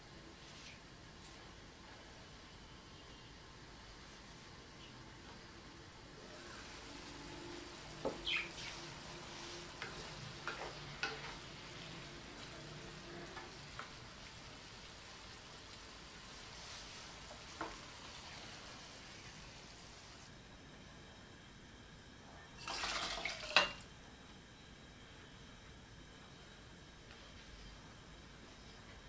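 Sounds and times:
food sizzling in a frying pan: 0:06.0 - 0:20.3
wooden spatula scraping a pan: 0:06.3 - 0:14.0.

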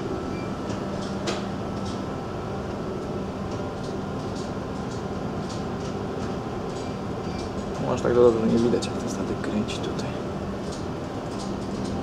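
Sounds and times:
machinery hum: 0:00.0 - 0:12.0.

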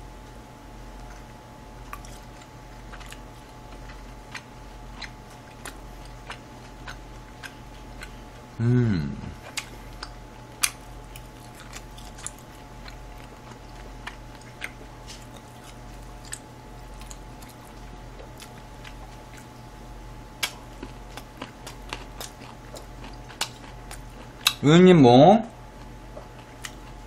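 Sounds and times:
steady low hum: 0:00.0 - 0:27.0
person chewing food: 0:00.2 - 0:24.6, 0:25.6 - 0:27.0.

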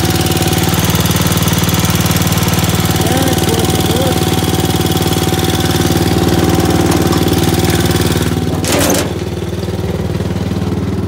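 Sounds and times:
garden tractor engine running: 0:00.0 - 0:11.0
scraping knock: 0:06.6 - 0:09.4.

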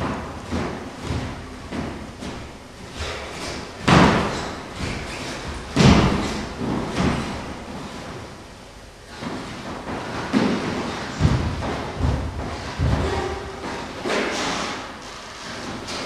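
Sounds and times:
heavy landing thuds: 0:00.0 - 0:08.4, 0:09.1 - 0:16.0
footsteps on wooden floor: 0:09.2 - 0:16.0.

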